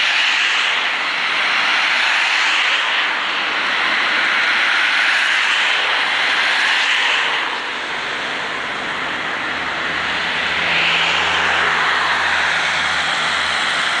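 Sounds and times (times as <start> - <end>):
road traffic passing: 0.0 - 14.0
low engine hum: 5.4 - 14.0.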